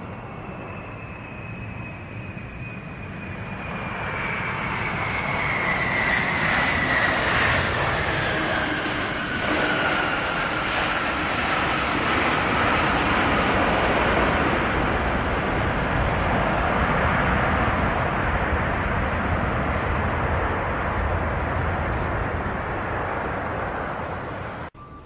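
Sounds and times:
jet engine roar: 0.0 - 25.0
jet engine whine: 0.0 - 25.0.

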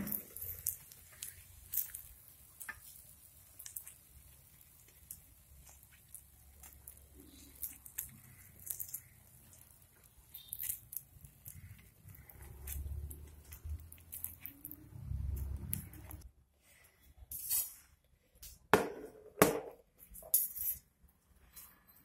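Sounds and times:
food set on steel plate: 0.0 - 16.2.

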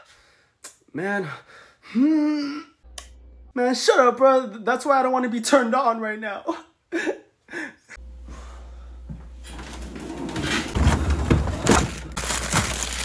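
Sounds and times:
rustling: 9.5 - 13.0.

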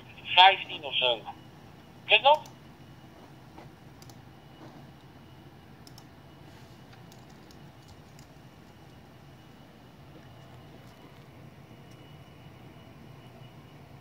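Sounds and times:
steady low hum: 0.0 - 14.0
faint clicks: 5.8 - 6.1.

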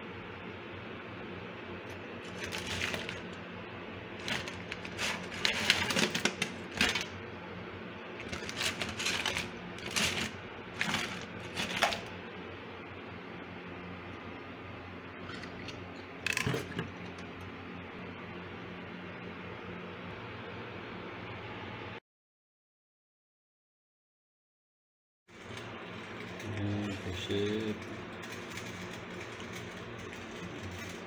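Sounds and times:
steady low hum: 0.0 - 22.0
crab shells clattering in sink: 2.3 - 3.4, 4.2 - 7.2, 8.2 - 12.1, 16.2 - 17.0.

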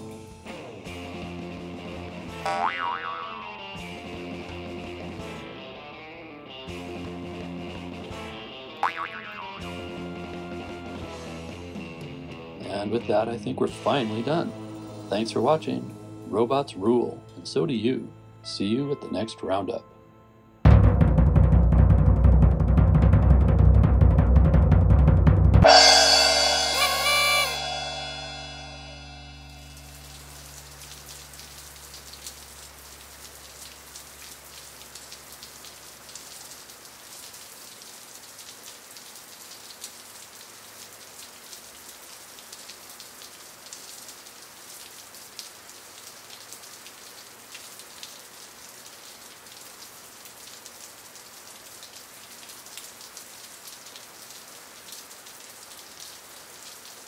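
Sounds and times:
low hum: 25.6 - 32.0
steady rain falling: 29.0 - 57.0.

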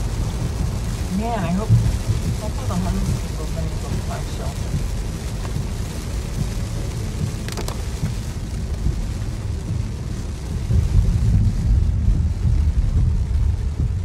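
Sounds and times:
heavy rain on car: 0.0 - 14.0
tyres rumbling on wet road: 0.0 - 14.0.

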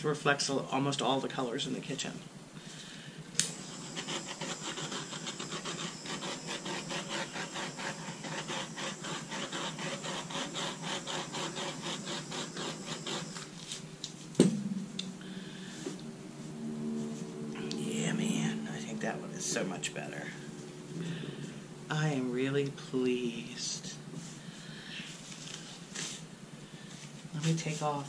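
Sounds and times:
paper towel rubbing on canvas: 3.6 - 13.9
sharp knock: 14.4 - 15.2.

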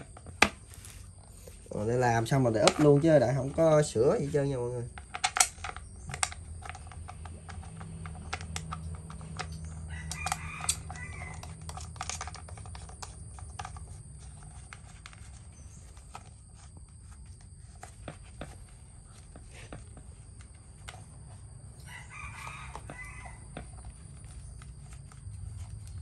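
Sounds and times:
rooster crowing: 9.5 - 12.0, 21.7 - 24.0.

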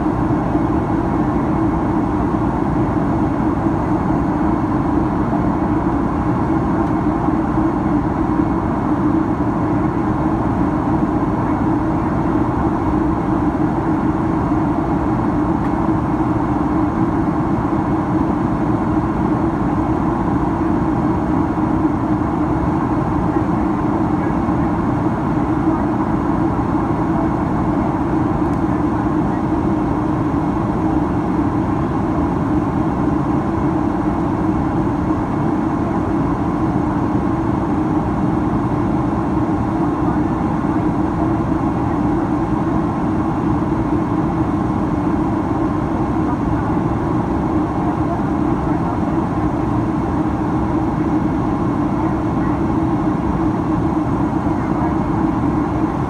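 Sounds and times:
airplane cabin engine noise: 0.0 - 56.0.

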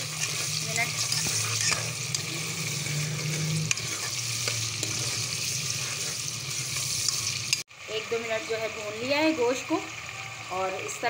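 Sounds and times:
spoon scraping a pot: 0.0 - 7.6
meat sizzling in hot oil: 0.0 - 11.0.

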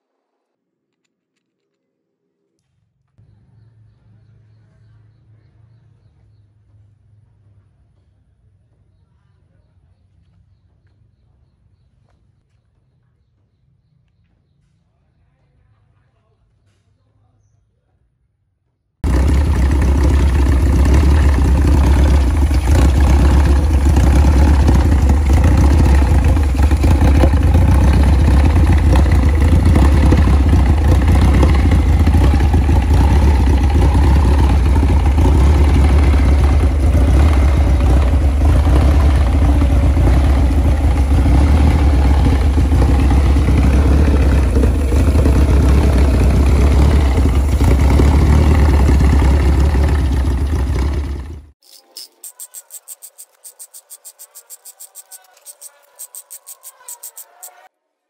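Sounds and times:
car engine droning: 19.0 - 51.6.

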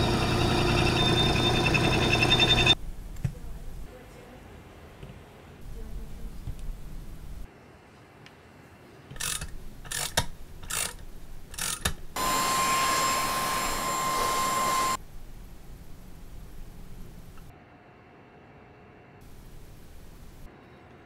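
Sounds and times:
electric drill whining: 0.0 - 2.8, 11.6 - 15.0.

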